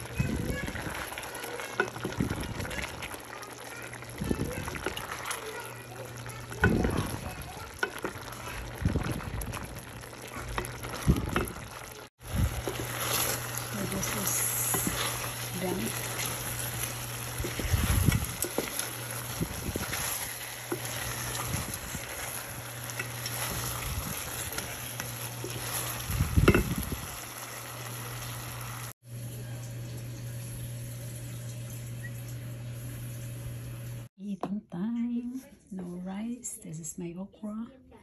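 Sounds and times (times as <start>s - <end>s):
sauce sizzling in a pot: 0.0s - 34.1s
wooden spatula scraping a pot: 4.6s - 26.9s.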